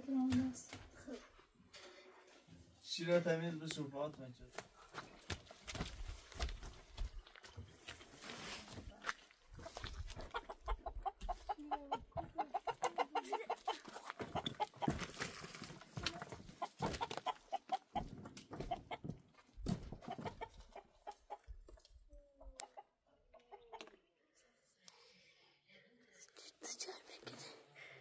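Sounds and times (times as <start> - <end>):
chickens clucking: 9.5 - 15.2, 16.0 - 19.2, 19.8 - 24.2.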